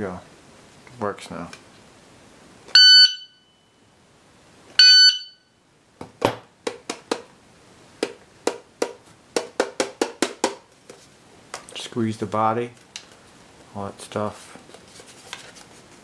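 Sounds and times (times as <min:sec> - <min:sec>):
shot timer start beep: 0:02.8 - 0:03.7, 0:04.8 - 0:05.5.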